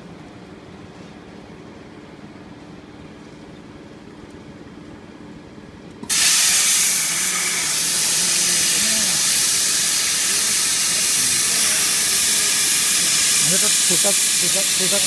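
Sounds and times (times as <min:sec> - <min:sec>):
cutting torch hissing: 0:06.0 - 0:15.0.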